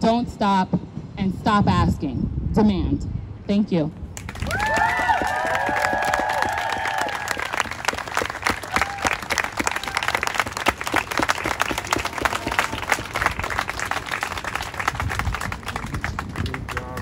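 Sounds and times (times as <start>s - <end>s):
crowd applauding: 4.2s - 17.0s.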